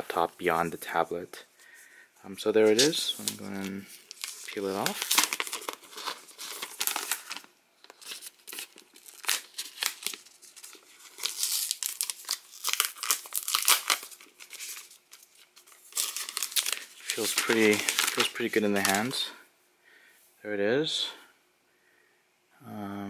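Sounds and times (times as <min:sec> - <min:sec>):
plastic wrapping crinkling: 0:02.6 - 0:19.4.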